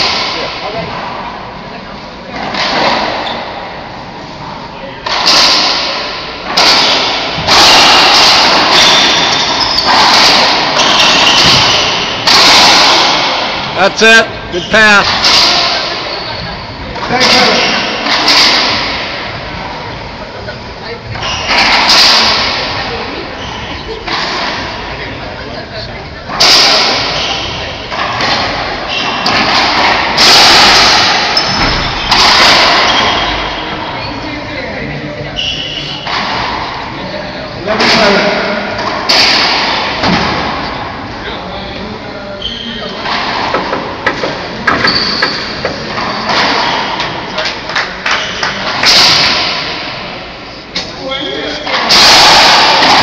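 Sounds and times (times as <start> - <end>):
racquetball hitting racquets and walls: 0.0 - 1.6, 2.2 - 4.2, 4.9 - 14.0, 14.6 - 20.1, 21.1 - 25.4, 26.3 - 34.1, 35.4 - 41.2, 42.4 - 50.9, 51.5 - 53.0
racquetball ball struck hard: 5.1 - 13.8, 26.4 - 33.8.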